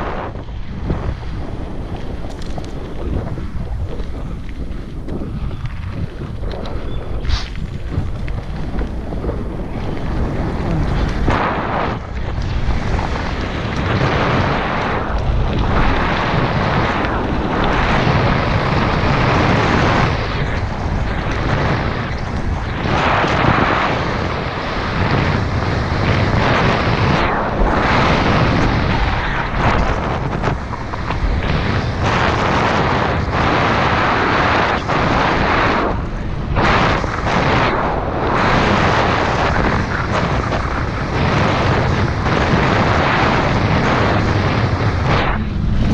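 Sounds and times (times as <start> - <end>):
bike tyres rumbling on dirt: 0.0 - 45.9
wind buffeting microphone: 0.0 - 45.9.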